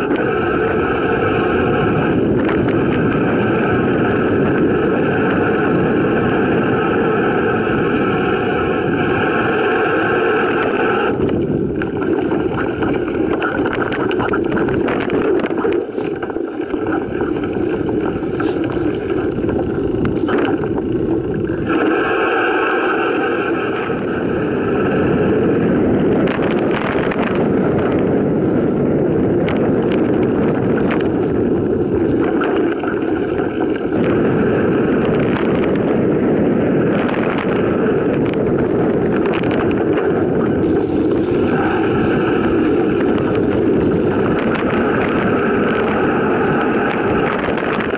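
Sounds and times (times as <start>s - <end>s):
bike rattling over bumps: 0.0s - 47.9s
rushing air: 0.0s - 47.9s
tyres rumbling on dirt: 0.0s - 47.9s.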